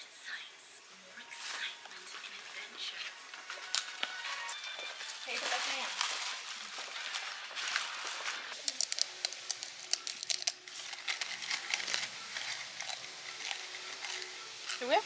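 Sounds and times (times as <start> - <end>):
plastic snack bag rustling: 5.2 - 15.0
crackers crackling and breaking: 7.2 - 15.0.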